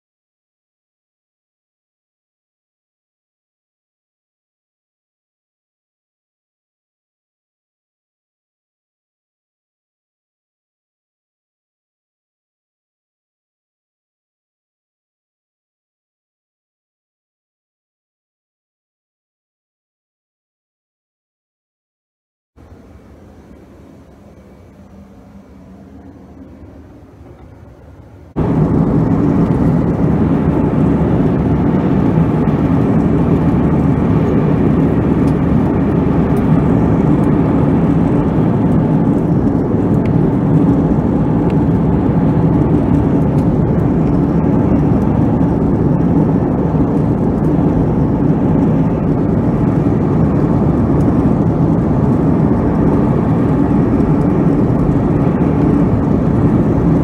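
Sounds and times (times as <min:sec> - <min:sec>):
airliner cabin engine drone: 0:22.6 - 0:57.0
low steady hum: 0:22.6 - 0:57.0.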